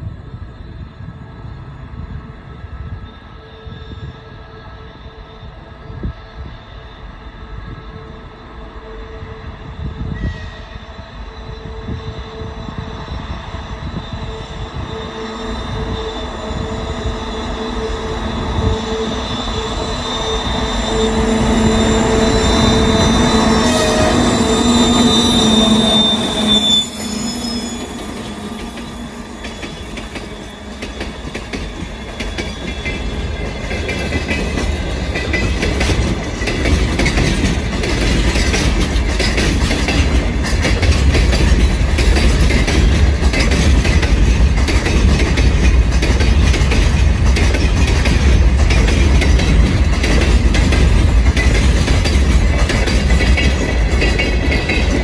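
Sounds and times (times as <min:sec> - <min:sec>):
diesel locomotive engines passing: 0:00.0 - 0:55.0
faint wheel squeal: 0:10.2 - 0:33.3
freight wagons rolling on track: 0:27.0 - 0:55.0.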